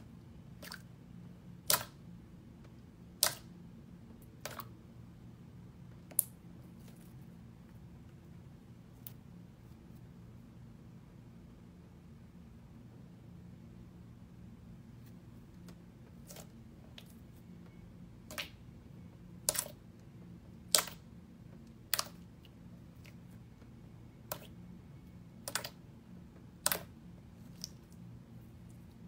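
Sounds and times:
faint low hum: 0:00.0 - 0:29.0
slime popping and clicking: 0:01.6 - 0:02.0, 0:03.2 - 0:03.5, 0:26.6 - 0:26.9.

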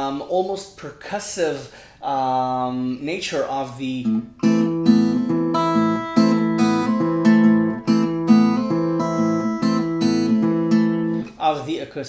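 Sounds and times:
acoustic guitar strumming: 0:04.0 - 0:11.4.

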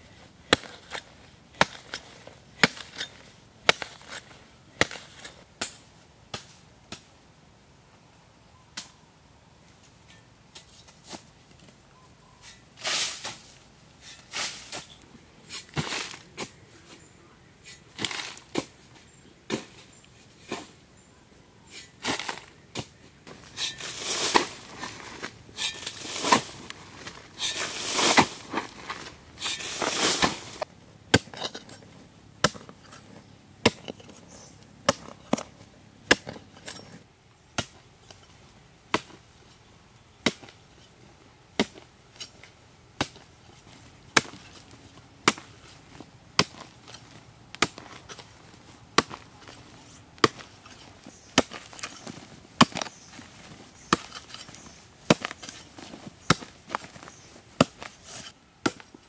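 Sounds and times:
hoe striking hard earth: 0:00.5 - 0:07.1, 0:12.5 - 0:17.0, 0:17.6 - 0:18.8, 0:21.7 - 0:38.3, 0:38.9 - 0:39.2, 0:40.2 - 0:40.6, 0:41.6 - 0:59.0.

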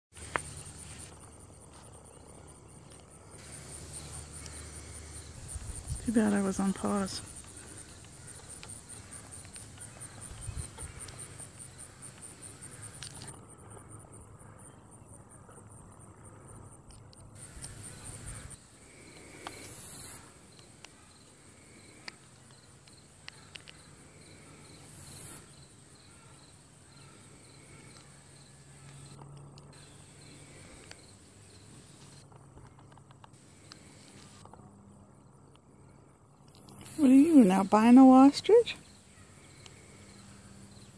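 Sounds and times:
insects trilling: 0:00.1 - 0:40.9.

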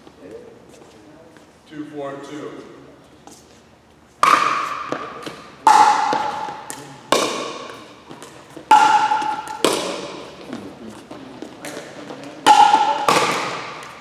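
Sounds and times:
paddles striking plastic ball: 0:04.2 - 0:10.2.

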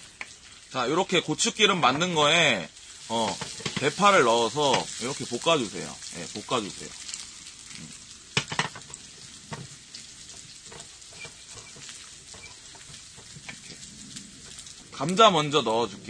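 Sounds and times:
onion sizzling in hot oil: 0:00.0 - 0:16.0
spatula scraping and knocking pan: 0:03.1 - 0:05.2, 0:07.8 - 0:13.8.

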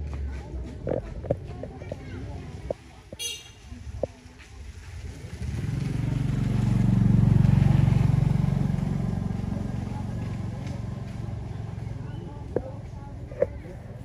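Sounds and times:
vehicle engine passing by: 0:04.4 - 0:14.0.

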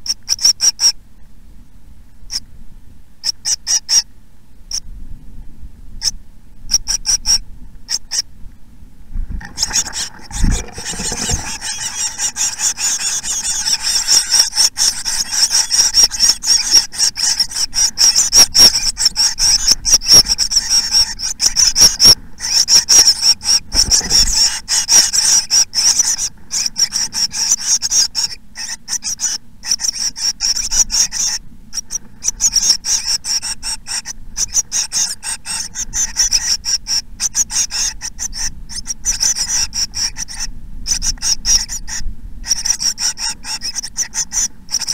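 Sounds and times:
nestlings begging calls: 0:00.0 - 0:01.0, 0:03.2 - 0:04.1, 0:06.0 - 0:08.3, 0:09.4 - 0:44.9
low thuds in nest box: 0:09.2 - 0:12.7.

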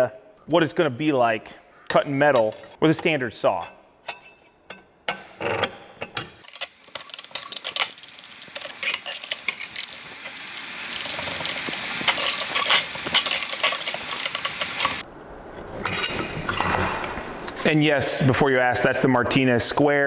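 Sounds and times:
metal clinks and rattles: 0:06.1 - 0:15.0.

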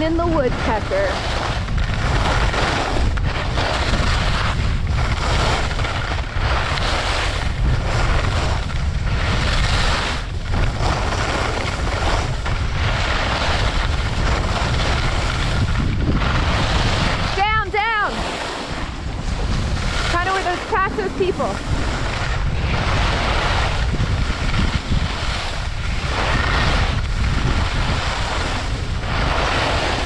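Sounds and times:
skis carving packed snow: 0:00.0 - 0:30.0
wind buffeting microphone: 0:00.0 - 0:30.0.

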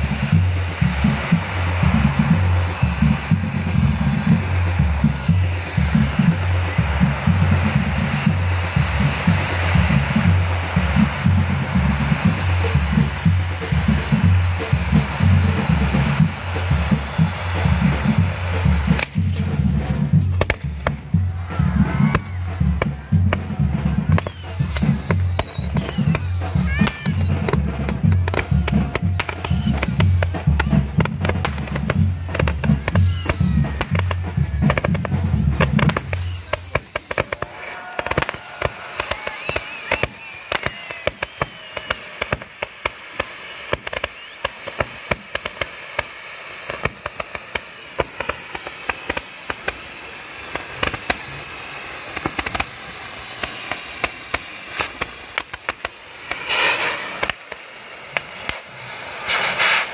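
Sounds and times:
small firework pops: 0:00.0 - 0:19.6, 0:20.2 - 0:21.1, 0:22.0 - 0:59.9
bass-heavy music: 0:00.0 - 0:36.8
falling firework whistles: 0:00.0 - 0:59.9
firework fountains hissing and crackling: 0:00.0 - 0:59.9.

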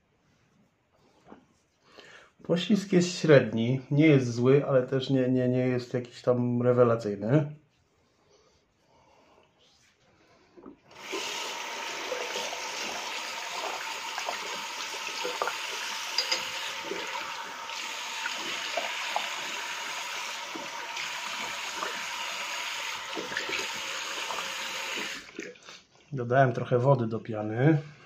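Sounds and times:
water tap running: 0:10.9 - 0:25.6.

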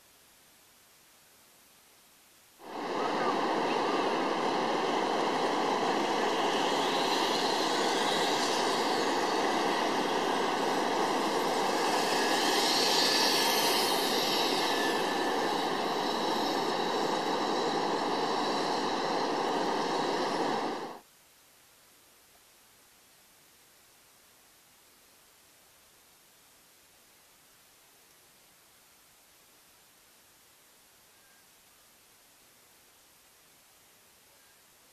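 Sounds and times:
zip-line trolley whirring on cable: 0:02.6 - 0:21.0.

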